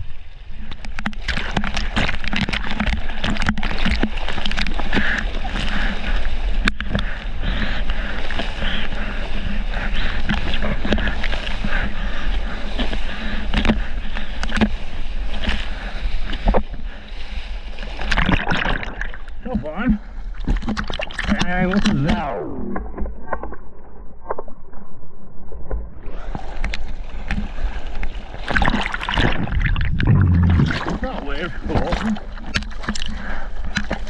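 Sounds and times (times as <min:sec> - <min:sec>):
water rushing past surfboard: 0:09.4 - 0:34.0.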